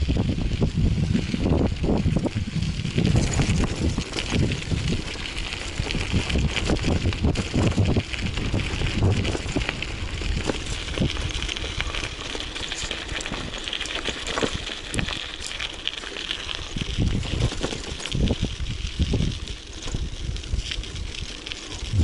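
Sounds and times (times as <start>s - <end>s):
bicycle tyres crunching on gravel: 0.0s - 22.0s
bike rattling over stones: 0.0s - 22.0s
wind rumbling on microphone: 0.0s - 22.0s.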